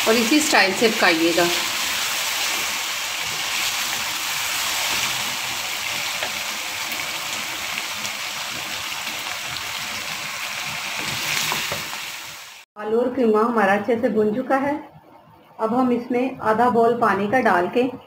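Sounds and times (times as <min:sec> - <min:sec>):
food sizzling in oil: 0:00.0 - 0:12.7.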